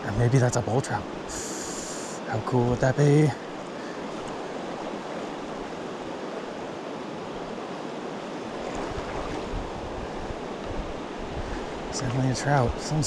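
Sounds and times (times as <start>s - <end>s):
river water rushing: 0.0s - 13.0s
wind buffeting microphone: 8.4s - 13.0s.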